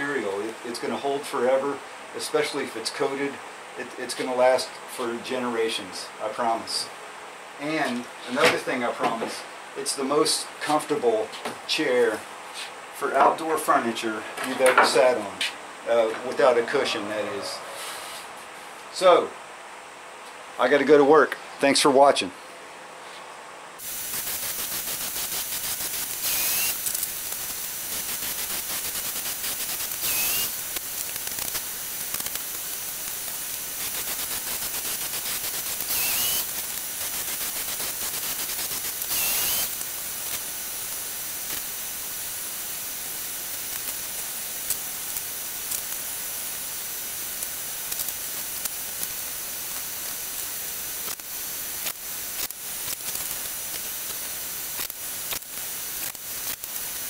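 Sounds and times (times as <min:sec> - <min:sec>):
steady hiss: 0:00.0 - 0:22.4, 0:23.0 - 0:57.0
cordless drill driving screws: 0:26.2 - 0:26.9, 0:30.0 - 0:30.5, 0:35.8 - 0:36.5, 0:39.0 - 0:39.8.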